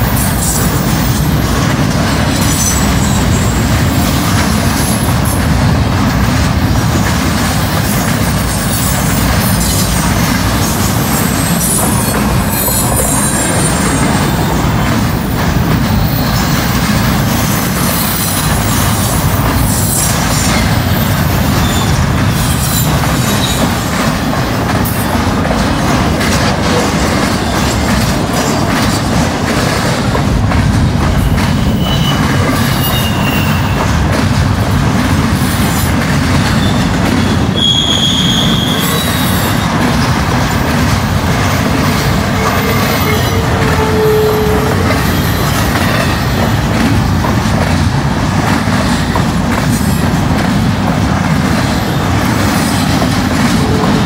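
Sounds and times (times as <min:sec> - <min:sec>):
clickety-clack over rail joints: 0:00.0 - 0:54.0
train wheels rumbling on rail: 0:00.0 - 0:54.0
high wheel squeals: 0:31.6 - 0:33.8, 0:37.5 - 0:39.7.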